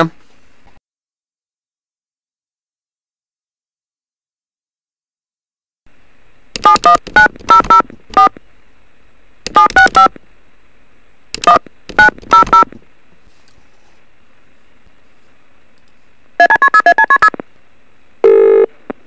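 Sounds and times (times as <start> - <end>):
phone keypad tone beeps: 6.6 - 8.3, 9.5 - 10.1, 11.4 - 12.7, 16.4 - 17.4, 18.2 - 18.7
faint phone line hiss: 18.2 - 19.0.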